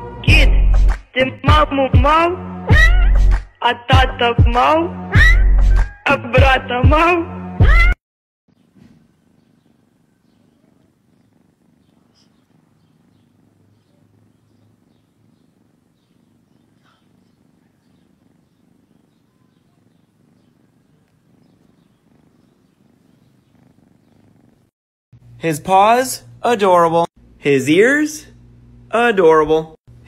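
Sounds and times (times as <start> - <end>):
kitten purring: 8.5 - 24.8.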